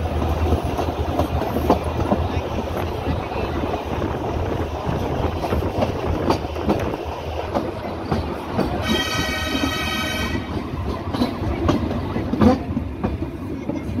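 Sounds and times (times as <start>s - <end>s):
train carriages rumbling: 0.0s - 14.0s
wheels clicking on rails: 0.0s - 14.0s
high reedy train horn: 8.8s - 10.6s.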